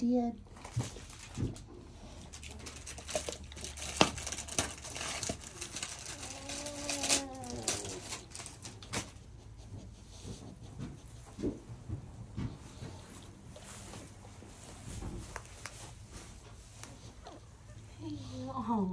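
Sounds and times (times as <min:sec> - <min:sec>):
crackling and crunching in straw: 0:00.4 - 0:09.2.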